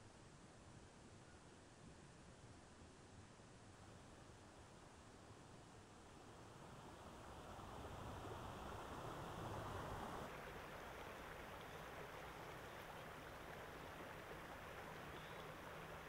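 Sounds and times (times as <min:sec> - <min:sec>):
stream running over rocks: 0:04.4 - 0:16.0.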